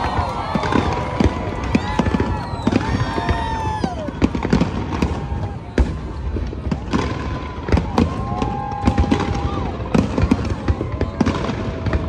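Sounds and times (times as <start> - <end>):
fireworks bangs and crackles: 0.0 - 12.0.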